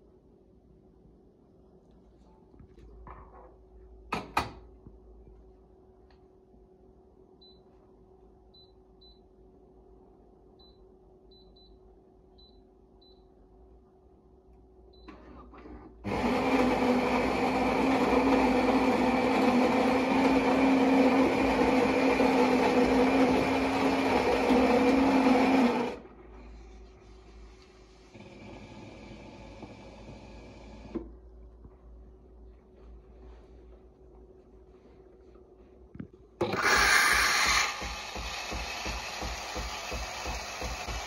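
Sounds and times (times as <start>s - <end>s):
coffee grinder whirring: 16.0s - 26.0s, 36.4s - 41.0s.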